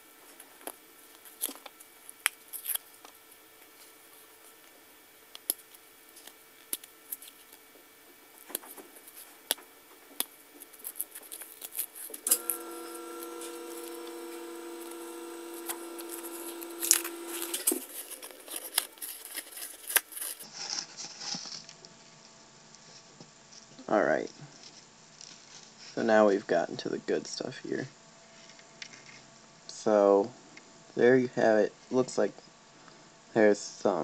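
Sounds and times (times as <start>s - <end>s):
steady hum: 0.0s - 20.5s
paper wrapping tearing: 1.2s - 3.0s, 10.2s - 21.6s.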